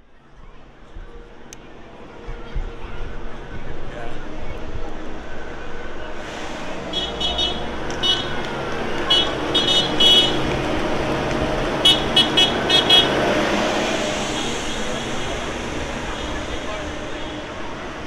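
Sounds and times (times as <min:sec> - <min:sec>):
tractor engines running: 0:06.3 - 0:18.0
high-pitched horn toots: 0:06.8 - 0:08.4, 0:11.8 - 0:17.8.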